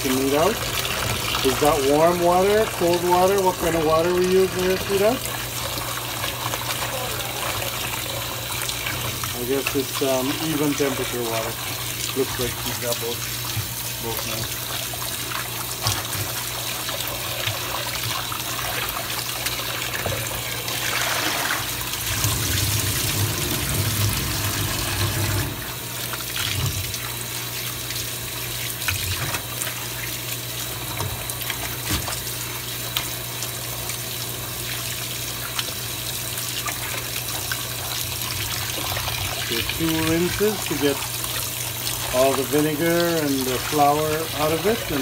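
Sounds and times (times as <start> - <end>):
faucet running into tub: 0.0 - 45.0
water splashing: 34.7 - 45.0.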